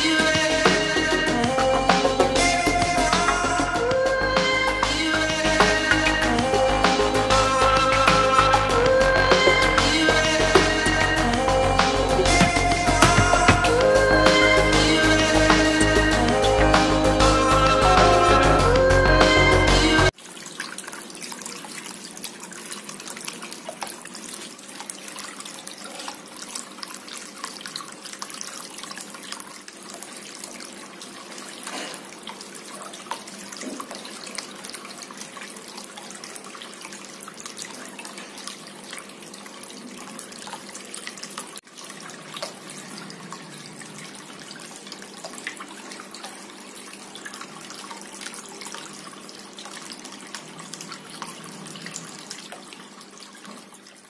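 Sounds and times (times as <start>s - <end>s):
water trickling into a fountain basin: 0.0s - 19.2s, 20.0s - 54.0s
faint pump hum: 20.1s - 54.0s.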